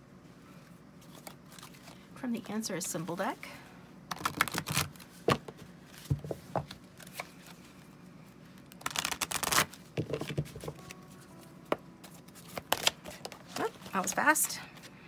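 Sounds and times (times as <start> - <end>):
cards being shuffled: 4.1 - 7.7, 8.5 - 11.4, 12.0 - 14.9.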